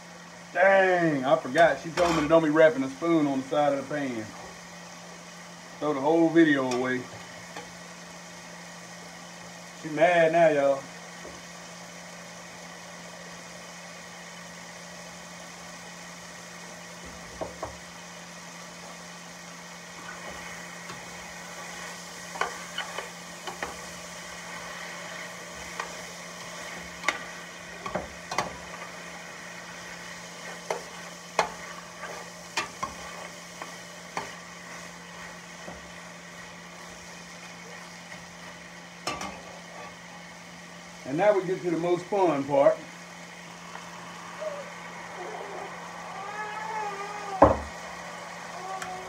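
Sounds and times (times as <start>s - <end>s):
vegetables sizzling in a pot: 0.0s - 49.0s
spoon scraping a pan: 20.0s - 24.0s, 30.3s - 35.9s.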